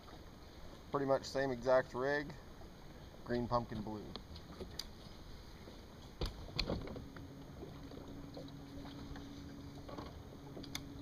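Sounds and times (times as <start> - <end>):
electric trolling motor hum: 5.9 - 11.0.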